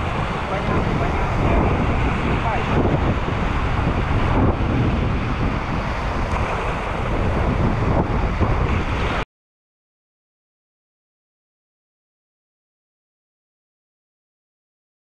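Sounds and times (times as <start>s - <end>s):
sea waves on shore: 0.0s - 9.2s
wind buffeting microphone: 0.0s - 9.2s.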